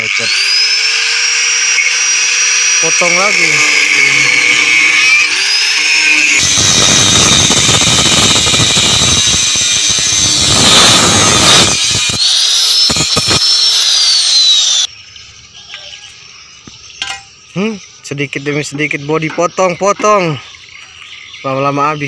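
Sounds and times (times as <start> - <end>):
grinder cutting sheet metal: 0.0 - 14.9
angle grinder whine: 0.0 - 22.0.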